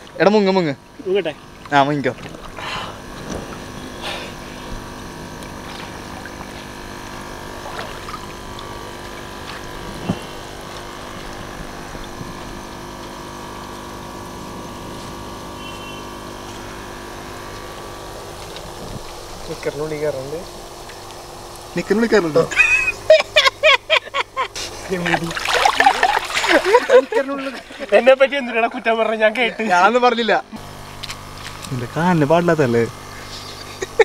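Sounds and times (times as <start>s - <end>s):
air compressor hum: 0.0s - 34.0s
water bubbling in fish tank: 2.3s - 14.9s.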